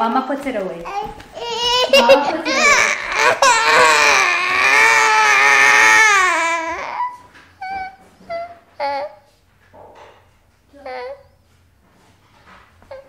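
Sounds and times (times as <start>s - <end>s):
toddler crying: 0.8s - 9.3s.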